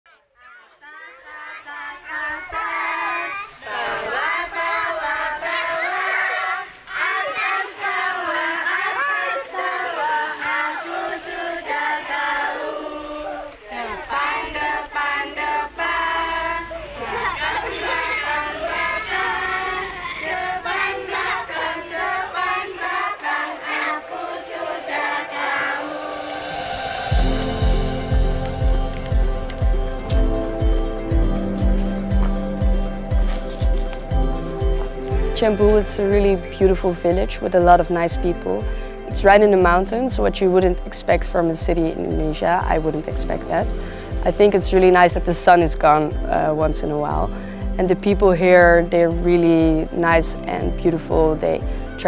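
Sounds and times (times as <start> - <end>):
children singing together: 0.6 - 37.8.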